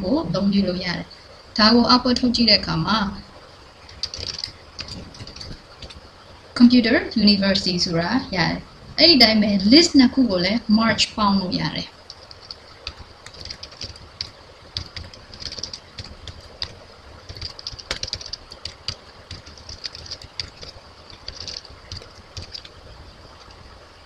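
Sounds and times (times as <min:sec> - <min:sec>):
typing on computer keyboard: 0:03.8 - 0:06.0, 0:12.0 - 0:23.6.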